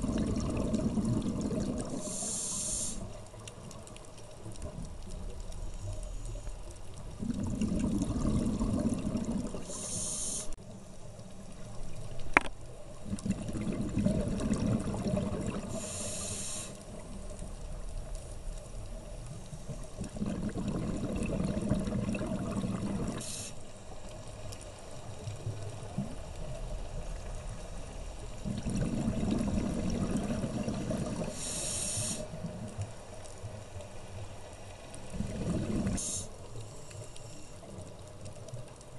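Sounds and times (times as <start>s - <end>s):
demand valve hiss: 2.0s - 3.1s, 9.7s - 10.6s, 15.8s - 16.8s, 31.3s - 32.3s.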